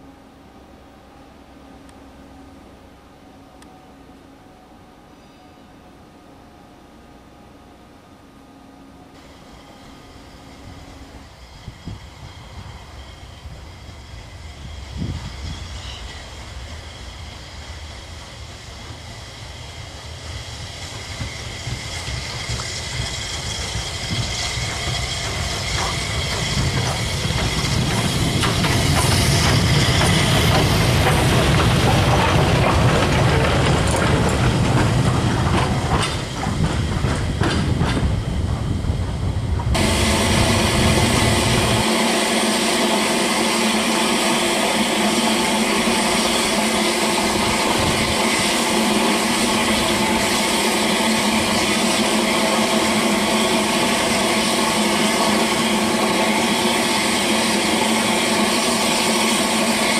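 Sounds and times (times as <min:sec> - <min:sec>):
steam locomotive passing: 0:00.0 - 0:59.9
steam hissing: 0:09.2 - 0:59.9
wheels clacking over rail joints: 0:20.9 - 0:41.8.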